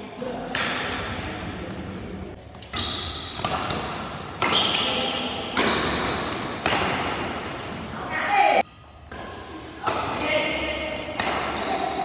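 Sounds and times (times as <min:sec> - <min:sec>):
rackets hitting shuttlecock: 0:02.6 - 0:07.4, 0:11.0 - 0:12.0.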